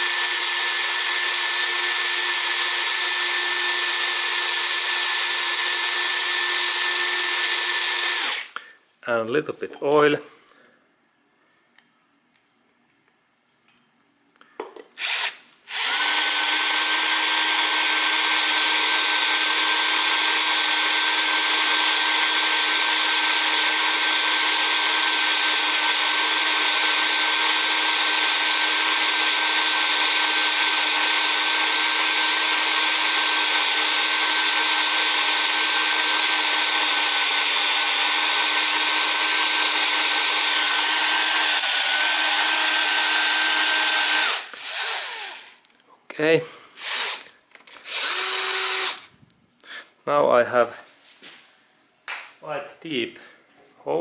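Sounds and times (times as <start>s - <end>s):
power drill cutting metal: 0.0s - 8.6s, 15.0s - 45.7s, 46.8s - 49.1s.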